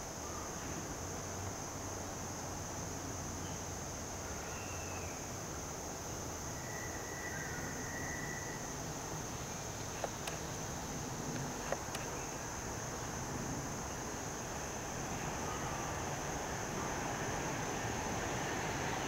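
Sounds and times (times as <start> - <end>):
insects droning: 0.0 - 19.0
faint whistled notes: 6.6 - 8.7.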